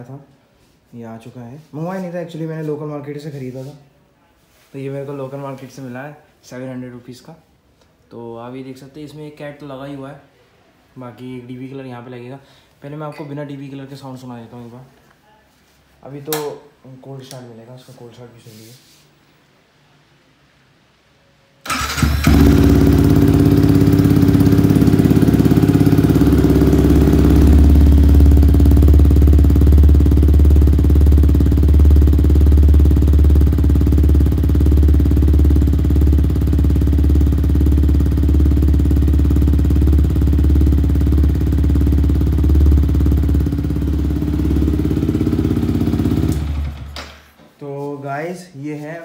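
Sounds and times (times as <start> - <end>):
motorcycle engine starting: 21.6 - 47.4
motorcycle engine idling: 21.7 - 47.2.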